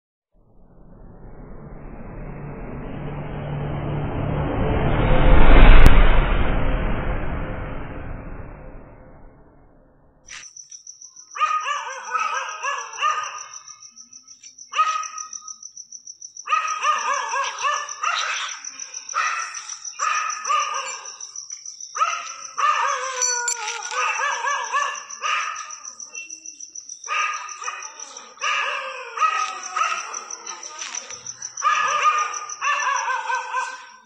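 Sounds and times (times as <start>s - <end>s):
steady high-pitched trill: 0.4s - 9.3s
dogs barking: 11.4s - 13.7s, 14.7s - 15.4s, 16.5s - 21.3s, 21.9s - 26.1s, 27.0s - 34.0s
dog whining: 22.6s - 25.6s.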